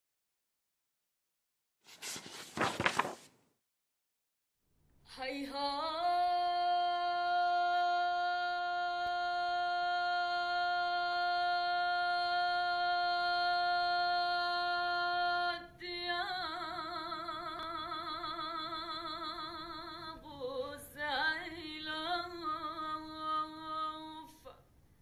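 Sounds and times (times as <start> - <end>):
woman singing unaccompanied: 5.1 - 24.6.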